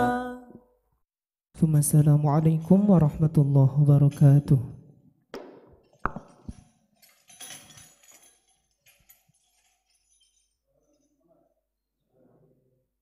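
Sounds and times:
jingles rattling: 6.3 - 11.4.

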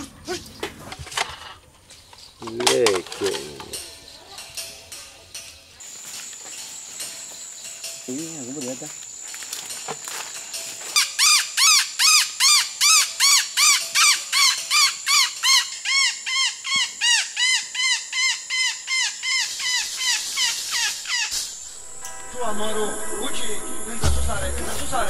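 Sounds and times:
high-pitched insect drone: 5.8 - 25.0
animal calling ringing notes: 11.0 - 23.8.

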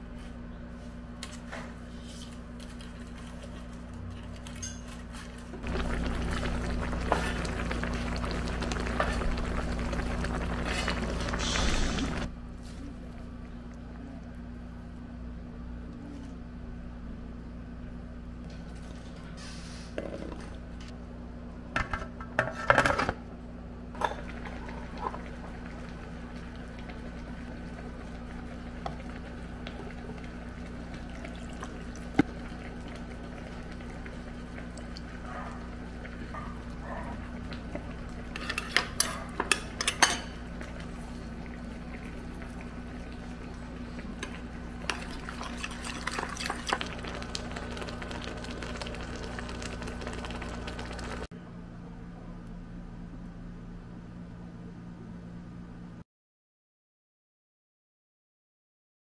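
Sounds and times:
steady low hum: 0.0 - 56.0
utensils clinking against dishes: 4.4 - 5.2, 38.3 - 40.4.

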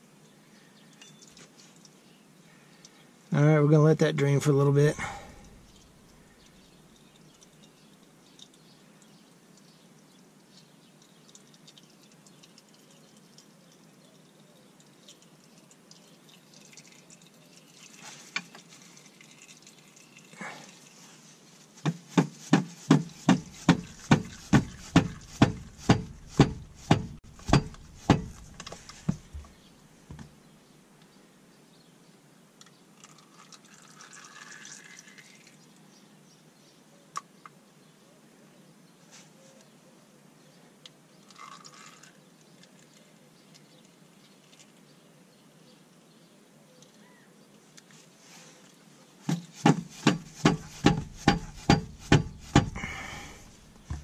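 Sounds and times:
fluid dripping into a pan: 5.3 - 21.0, 33.0 - 35.6, 41.2 - 42.9
hand tool clicking on bolt: 50.0 - 52.8.

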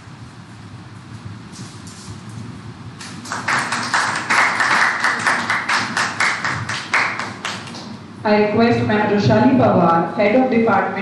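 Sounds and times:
audience clapping: 3.0 - 8.0.

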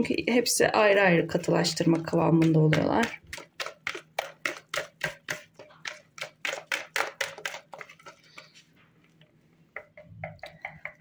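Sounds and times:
whisk beating batter in a bowl: 0.0 - 8.7.

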